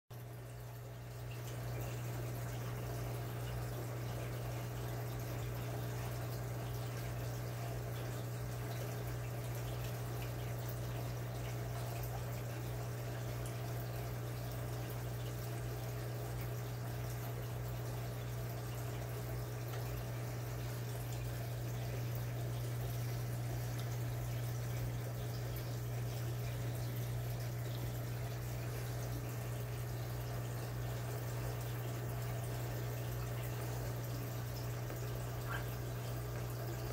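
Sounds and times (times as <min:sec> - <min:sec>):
aquarium filter humming: 0:00.1 - 0:36.9
water trickling and dripping: 0:00.1 - 0:36.9.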